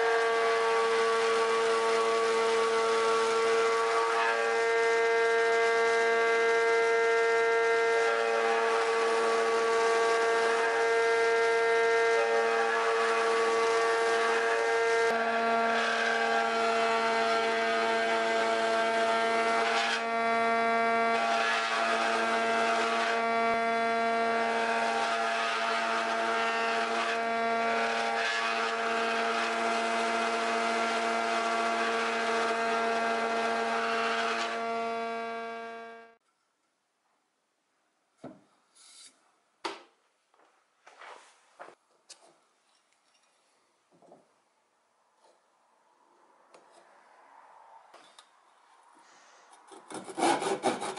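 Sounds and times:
mortising machine cutting wood: 0.0s - 36.1s, 49.7s - 50.9s.

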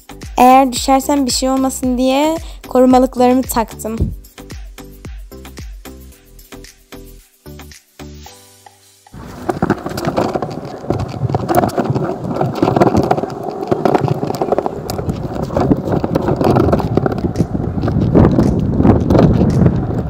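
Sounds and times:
skateboard wheels rolling on stone: 9.1s - 20.0s.

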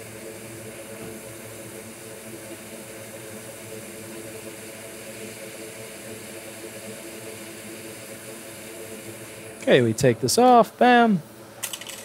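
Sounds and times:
hot air blower hissing: 0.0s - 12.0s.

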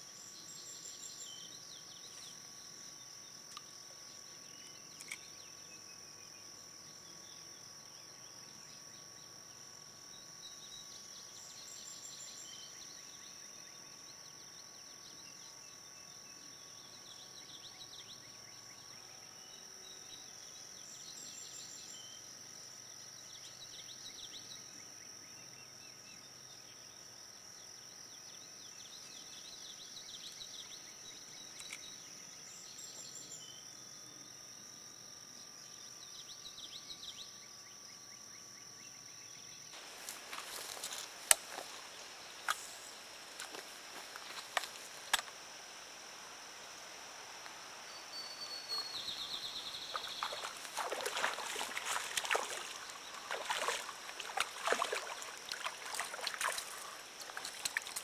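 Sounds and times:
high insect drone: 0.0s - 58.0s
bird chirps: 47.9s - 55.3s.

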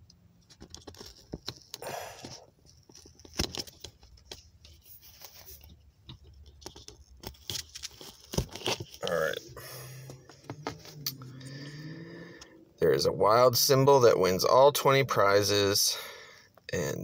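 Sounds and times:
paper rustling: 0.6s - 9.4s.

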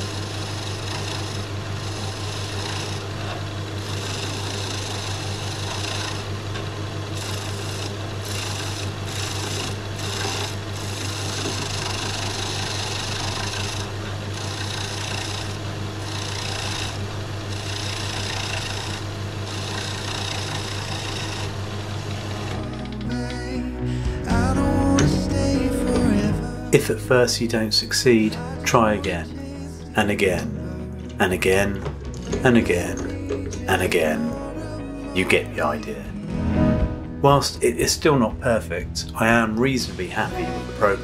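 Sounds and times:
chisel scraping spinning wood: 0.0s - 23.1s
lathe motor hum: 0.0s - 23.1s.

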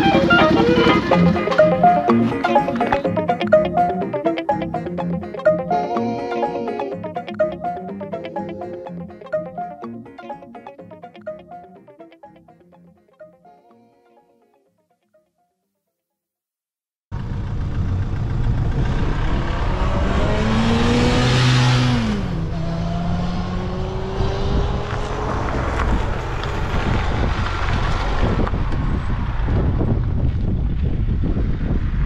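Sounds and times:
motorcycle engine accelerating hard: 17.1s - 32.0s
wind rush on microphone: 23.8s - 32.0s.

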